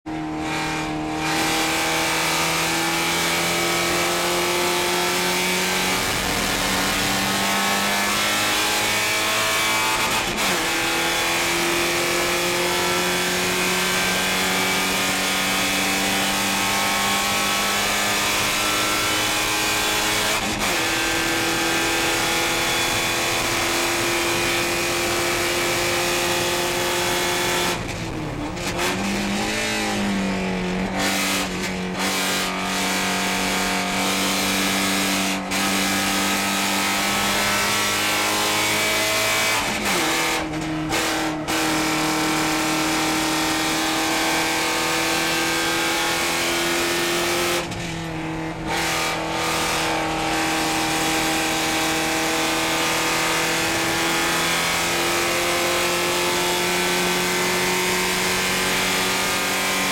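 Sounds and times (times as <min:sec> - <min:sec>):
race car engine under full throttle: 0:00.0 - 0:59.9
gear changes: 0:14.3 - 0:31.8.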